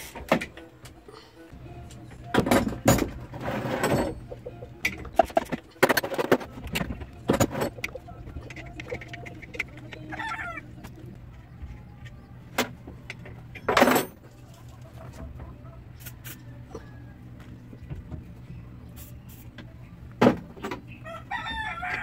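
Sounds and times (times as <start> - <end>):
metal clatter: 2.3 - 10.4
chicken clucking: 4.0 - 5.8, 6.5 - 13.6, 14.2 - 19.0
tools clicking and knocking: 4.8 - 11.0.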